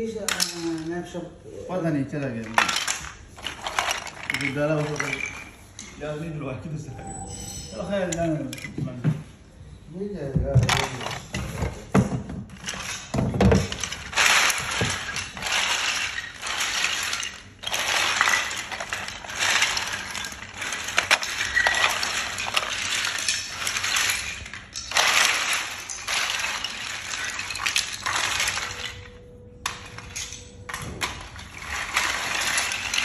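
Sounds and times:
wood chips clattering: 2.2s - 6.1s, 10.5s - 11.8s, 12.4s - 33.0s.

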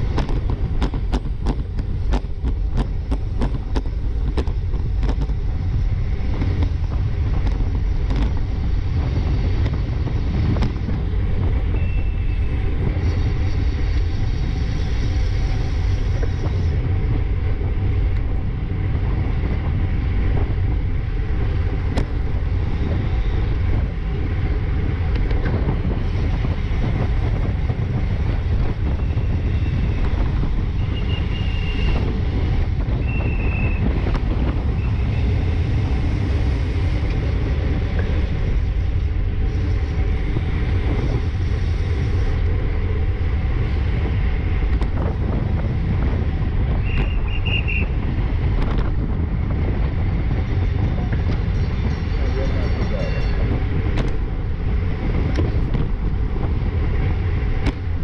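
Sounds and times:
bike tyres rumbling on asphalt: 0.0s - 58.0s
wind rushing over microphone: 0.0s - 58.0s.

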